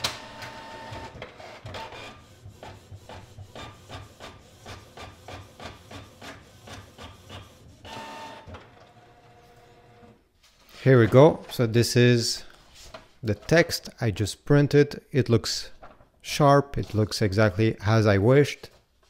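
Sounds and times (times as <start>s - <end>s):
printer whirring: 0.0s - 10.2s.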